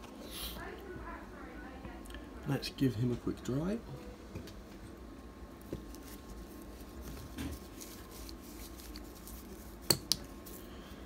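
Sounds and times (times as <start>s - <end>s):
low room hum: 0.0s - 11.0s
tissue rustling: 5.8s - 10.7s.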